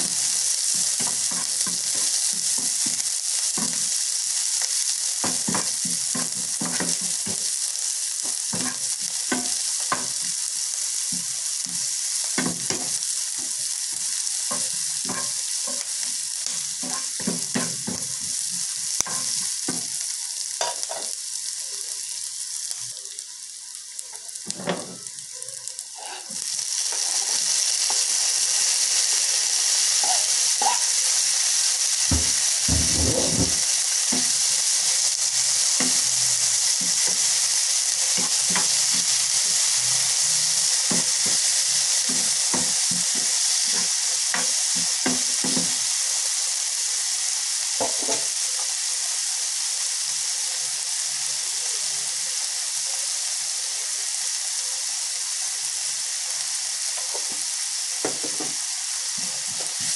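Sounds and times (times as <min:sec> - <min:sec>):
spatula scraping and tapping pan: 0:00.0 - 0:07.5, 0:08.2 - 0:10.4, 0:11.1 - 0:19.9, 0:32.0 - 0:34.5, 0:35.7 - 0:37.4, 0:38.0 - 0:39.2, 0:40.8 - 0:45.8
vegetables sizzling in a frying pan: 0:00.0 - 0:59.9.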